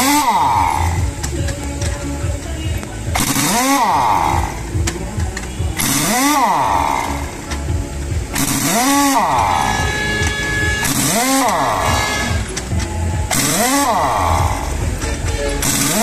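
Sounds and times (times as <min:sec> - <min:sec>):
pneumatic impact wrench bursts: 0:00.0 - 0:02.2, 0:03.1 - 0:07.6, 0:08.3 - 0:16.0
motor low throb: 0:03.1 - 0:16.0.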